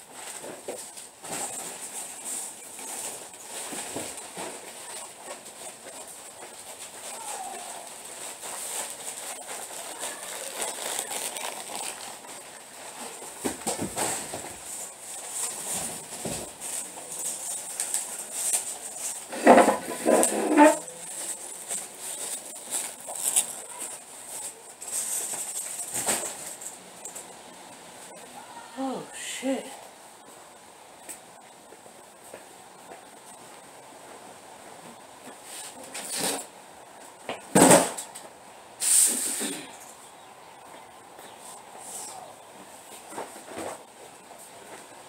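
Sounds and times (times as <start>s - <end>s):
footsteps: 0.0s - 27.2s, 31.1s - 36.4s
shopping bags rustling: 0.0s - 27.3s
steady high hiss: 0.0s - 45.0s.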